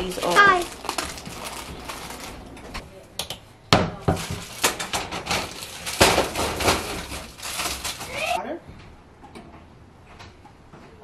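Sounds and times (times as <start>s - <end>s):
plastic bag rustling: 0.0s - 2.8s, 4.1s - 8.4s.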